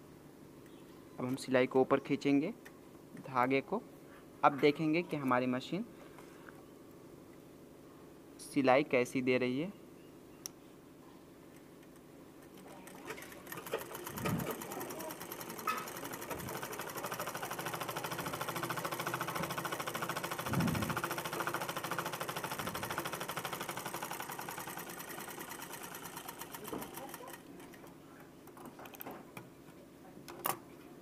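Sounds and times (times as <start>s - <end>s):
sewing machine stitching: 12.6s - 27.9s.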